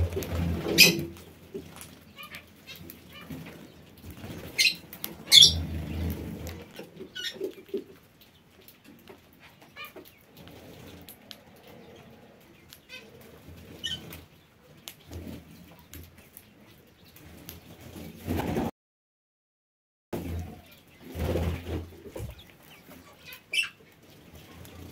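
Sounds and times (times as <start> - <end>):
wings fluttering: 0.0 - 18.7, 20.2 - 24.9
loud sharp bird squawks: 4.6 - 5.6.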